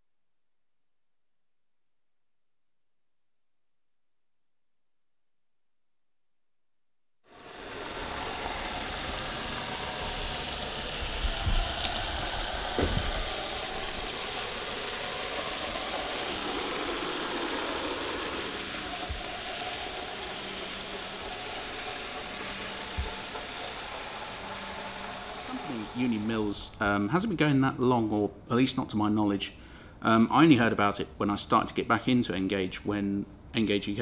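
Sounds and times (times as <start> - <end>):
model train whirring on rails: 7.3 - 28.2
low thumps: 11.1 - 14.6.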